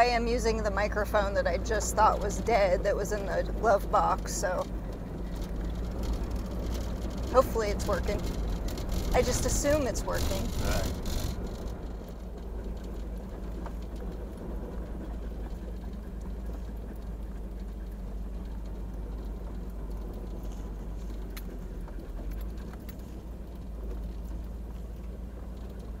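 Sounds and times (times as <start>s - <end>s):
truck tyres and engine rumble: 0.0s - 26.0s
light ticks: 10.3s - 26.0s.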